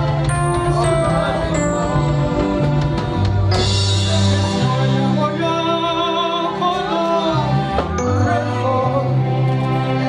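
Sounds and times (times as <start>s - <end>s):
instrumental accompaniment: 0.0s - 10.0s
person singing gospel: 0.3s - 10.0s.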